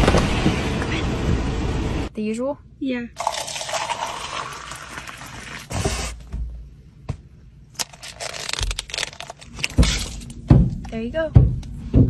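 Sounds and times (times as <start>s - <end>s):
milk pouring into plastic cup: 3.2s - 5.7s.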